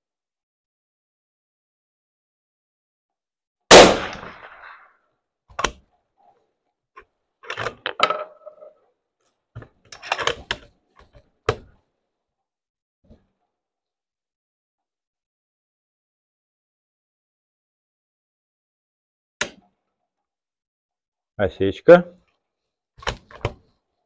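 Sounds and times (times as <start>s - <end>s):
rifle shot: 3.7s - 4.9s.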